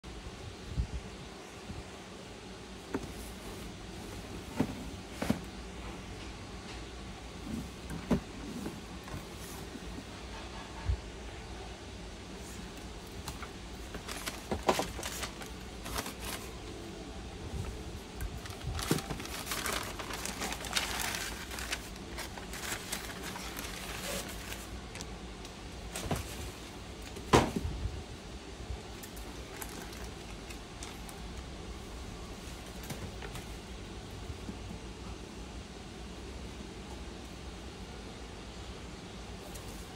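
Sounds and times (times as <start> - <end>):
tissue paper rustling: 13.3 - 16.7, 18.4 - 25.1, 29.2 - 31.3
cardboard box being handled: 18.4 - 24.7.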